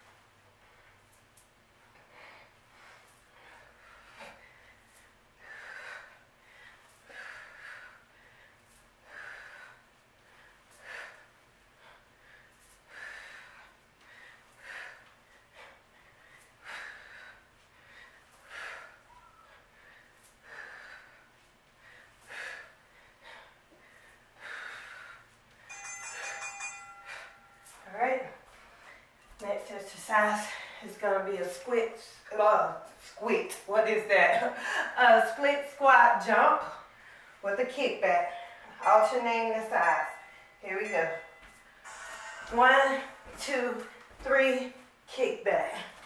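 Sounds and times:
woman breathing hard: 1.9 - 29.3
electronic beeping tone: 41.9 - 43.3.

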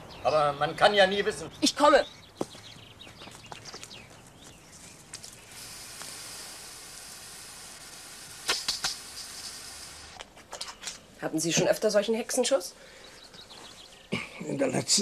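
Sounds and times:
lawn sprinkler hissing: 5.0 - 10.4
sharp ticks: 8.4 - 10.3.

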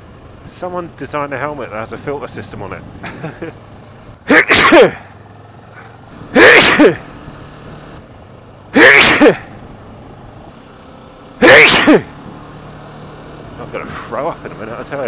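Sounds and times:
man sneezing loudly: 4.3 - 5.1, 6.3 - 7.1, 8.8 - 9.5, 11.4 - 12.1.

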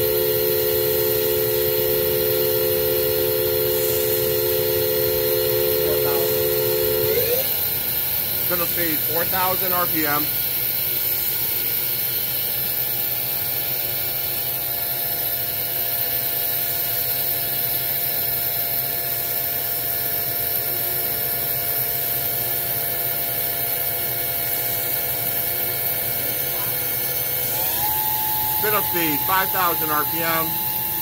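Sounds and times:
low machine hum: 0.0 - 11.0, 20.2 - 31.0
lathe spindle whine: 0.0 - 31.0.

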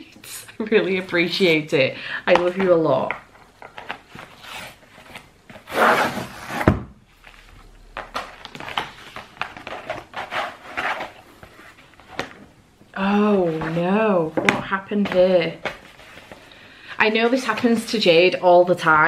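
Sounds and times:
paper packaging rustling: 3.4 - 12.5.

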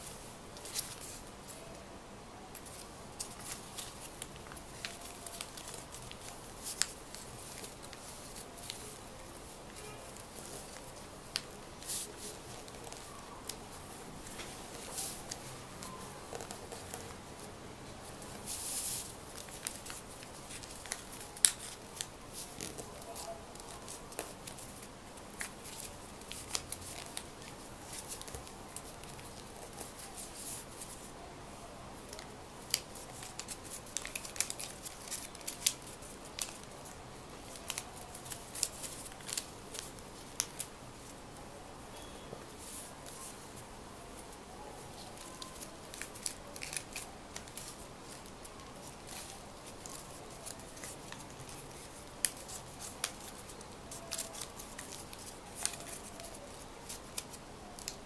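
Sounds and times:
paper rustling: 0.6 - 1.8, 2.5 - 17.5, 18.1 - 31.1, 32.0 - 41.1, 42.0 - 58.0
scissors snipping paper: 32.1 - 36.7, 45.0 - 58.0.

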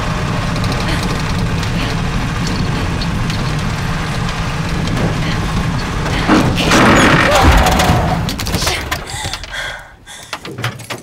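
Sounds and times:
vehicle engine droning: 0.0 - 8.5.

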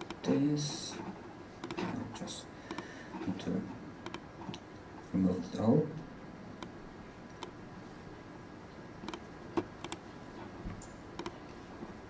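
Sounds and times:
computer mouse clicks: 0.0 - 0.2, 1.0 - 2.0, 2.7 - 3.3, 4.0 - 4.6, 6.6 - 7.6, 9.0 - 10.1, 10.8 - 11.4
faint room noise: 0.0 - 12.0.

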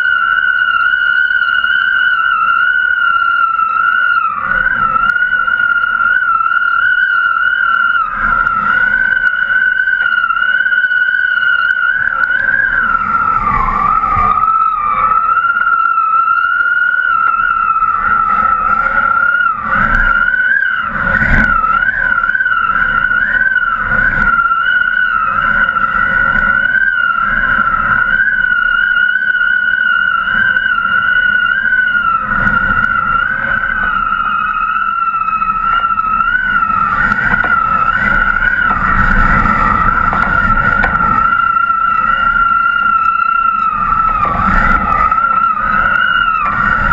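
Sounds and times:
wind whistling on rig: 0.0 - 46.9
wind rumble on microphone: 30.1 - 46.9.

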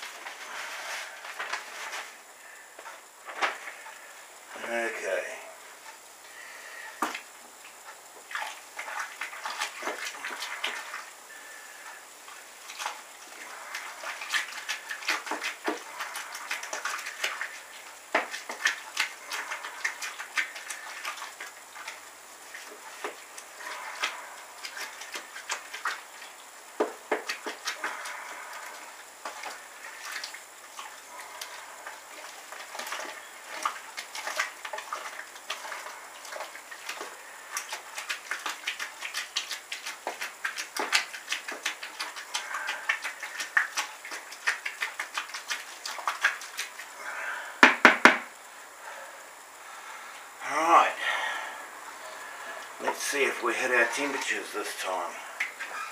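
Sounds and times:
wet stirring of grain: 0.0 - 47.5, 49.7 - 55.9
paddle knocking on cooler walls: 47.6 - 48.3.

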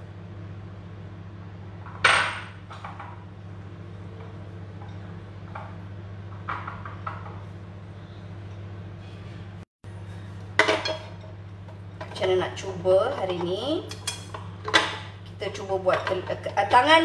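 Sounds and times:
steady low hum: 0.0 - 17.0
dishes clattering: 10.6 - 11.4, 13.1 - 15.1.

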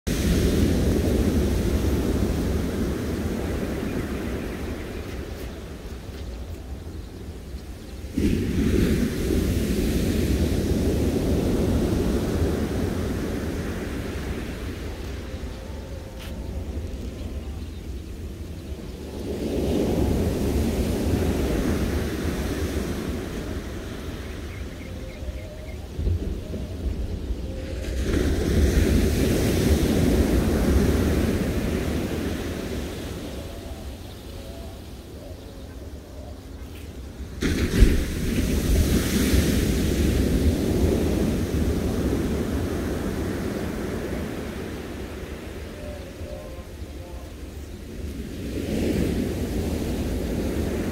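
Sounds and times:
wave breaking on beach: 0.1 - 6.2, 8.1 - 16.8, 19.1 - 25.0, 27.8 - 34.0, 37.1 - 50.9
wind rumbling on microphone: 0.1 - 50.9.

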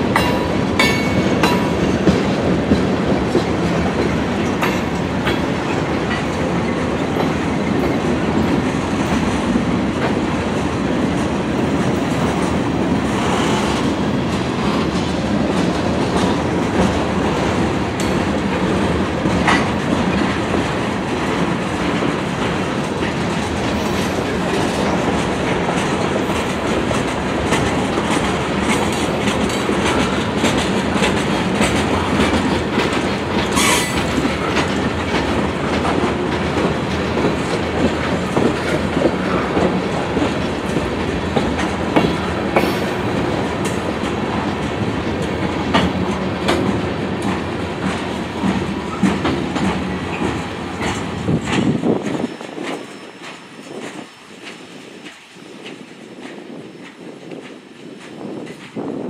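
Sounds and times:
train wheel rumble: 0.0 - 59.0
wheels clicking on rails: 0.0 - 59.0.

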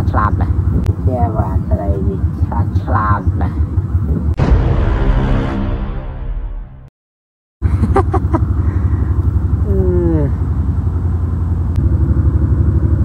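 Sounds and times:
small engine chugging: 7.7 - 13.0.

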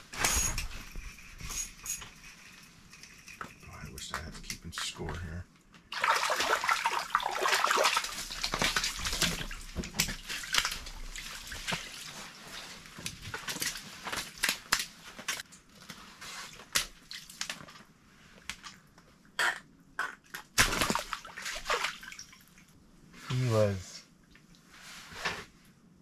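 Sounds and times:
water splashing and sloshing: 5.1 - 19.0, 20.2 - 23.6.

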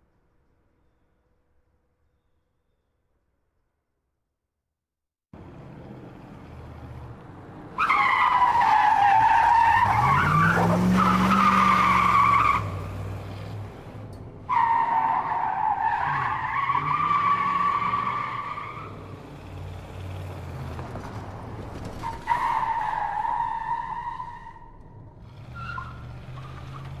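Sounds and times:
car tyres squealing and skidding: 7.7 - 13.0, 14.5 - 19.2, 20.2 - 27.0
engine revving: 9.4 - 14.1.

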